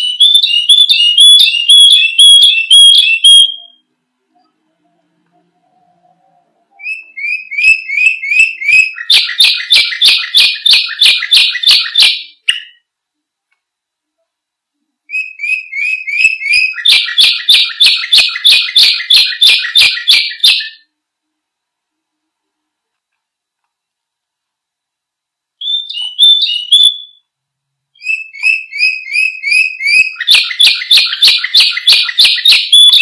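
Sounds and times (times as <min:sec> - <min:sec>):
canary singing trills: 0:00.0 - 0:12.9, 0:15.1 - 0:20.9, 0:25.6 - 0:27.3, 0:28.0 - 0:33.0.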